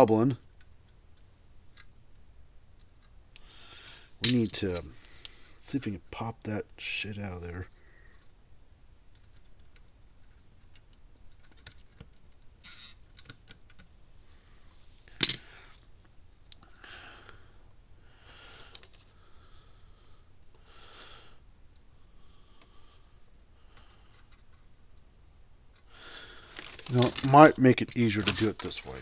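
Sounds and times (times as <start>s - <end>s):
soft breaths: 3.4s - 5.8s, 7.6s - 8.4s, 14.0s - 24.8s, 25.8s - 29.0s.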